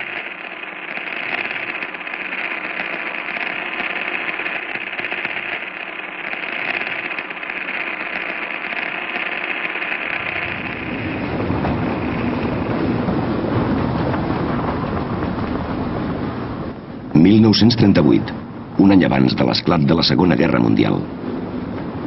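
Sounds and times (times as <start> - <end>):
fast mechanical clatter: 0.0 - 16.5.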